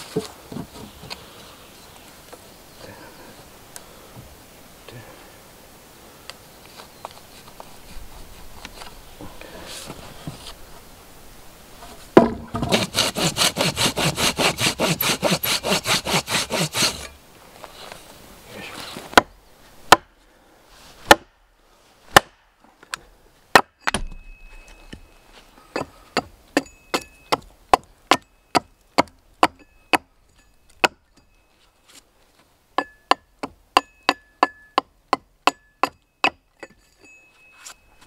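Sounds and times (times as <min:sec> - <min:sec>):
wood scraping and handling: 0:00.0 - 0:01.6, 0:06.7 - 0:10.9, 0:11.8 - 0:19.2
hand saw cutting log: 0:12.5 - 0:17.2.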